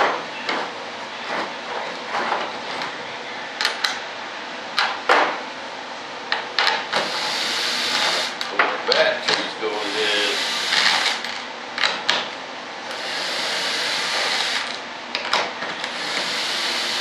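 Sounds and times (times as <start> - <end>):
cordless drill running: 7.0 - 8.4, 9.7 - 11.4, 12.9 - 14.8, 15.8 - 17.0.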